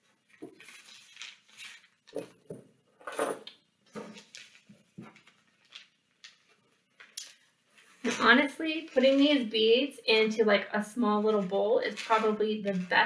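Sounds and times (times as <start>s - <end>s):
plastic bag rustling: 0.0s - 10.3s.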